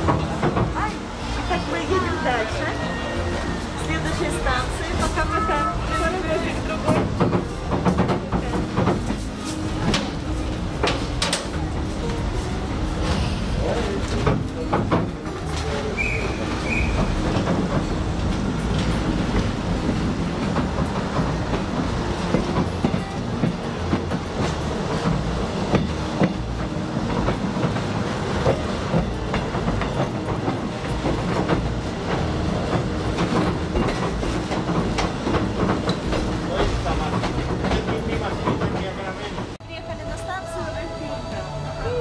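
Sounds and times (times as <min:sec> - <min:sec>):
clicking over rails: 0:00.0 - 0:39.6
train wheels rumbling: 0:00.0 - 0:42.0.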